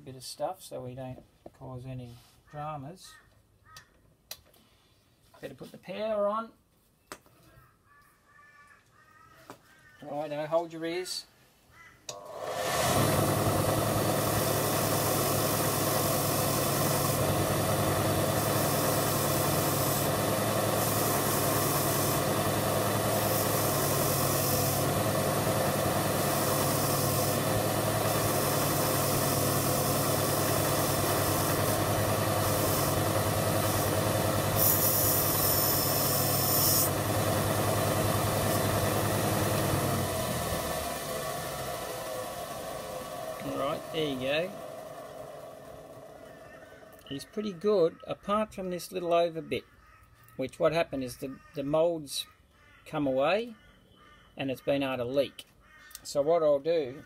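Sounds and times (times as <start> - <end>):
bench grinder running: 12.1 - 47.0
metal hissing against wire brush: 18.3 - 25.0, 26.0 - 37.0.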